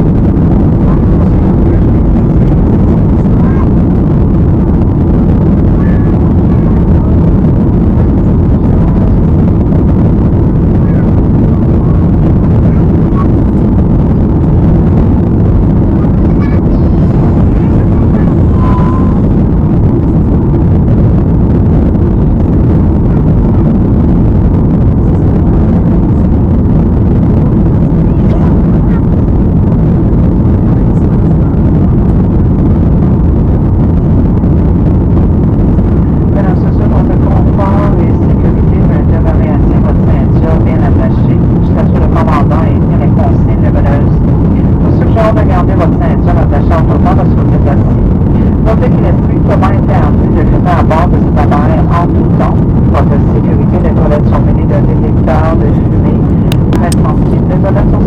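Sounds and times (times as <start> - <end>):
rushing air: 0.0 - 57.9
jet engines roaring: 0.0 - 58.0
faint high tone: 16.0 - 19.2.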